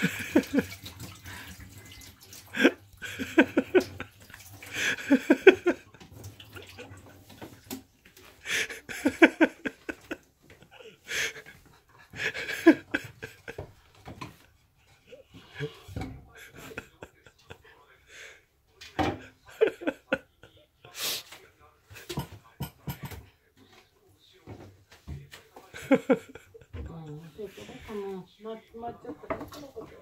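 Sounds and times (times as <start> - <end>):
elderly woman laughing: 0.0 - 1.4, 2.5 - 7.0, 8.4 - 13.7, 14.3 - 17.6, 19.4 - 20.6, 25.8 - 28.1
water running into sink: 0.0 - 7.8
wheezy gasping breaths: 10.7 - 12.7.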